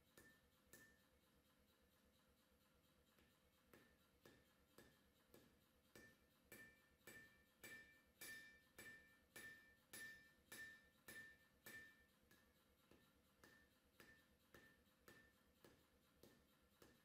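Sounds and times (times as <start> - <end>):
hammer blows on anvil: 6.0 - 12.1.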